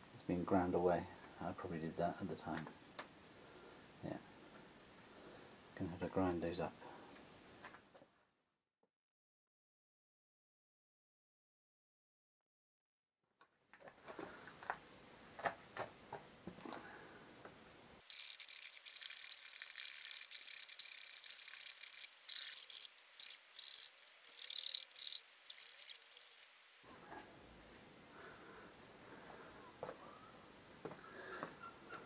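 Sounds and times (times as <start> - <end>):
hand tool scraping plastic: 18.1 - 26.5.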